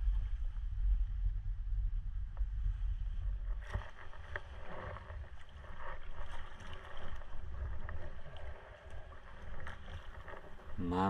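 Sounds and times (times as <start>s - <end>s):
steady low rumble: 0.0s - 4.3s
paddle splashing in water: 3.5s - 10.9s.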